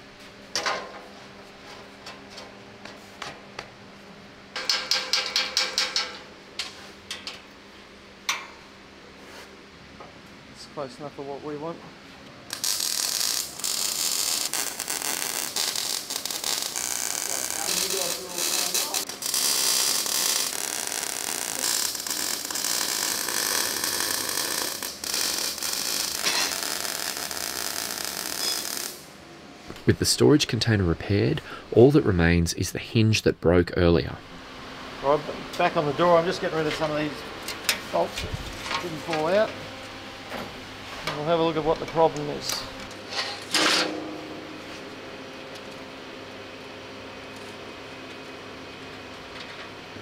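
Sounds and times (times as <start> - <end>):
metal panels clanking: 4.6 - 7.5, 43.0 - 44.4
welding arc crackling hiss: 12.5 - 29.8.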